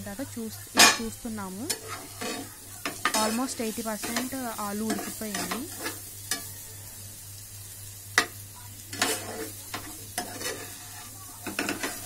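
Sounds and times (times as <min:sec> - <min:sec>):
frying sizzle: 0:00.0 - 0:12.0
spatula scraping a frying pan: 0:01.7 - 0:06.6, 0:08.2 - 0:12.0.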